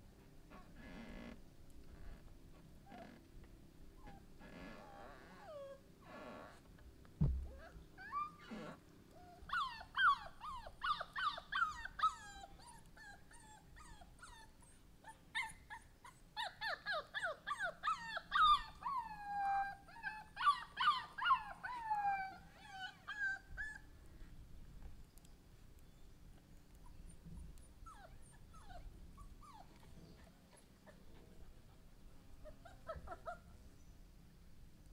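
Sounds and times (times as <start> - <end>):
puppy drawn-out cries: 4.0 - 5.8, 7.5 - 23.9, 26.8 - 31.3, 32.4 - 33.6
puppy whimpering: 4.0 - 5.8, 7.5 - 23.9, 26.8 - 31.7, 32.4 - 33.6.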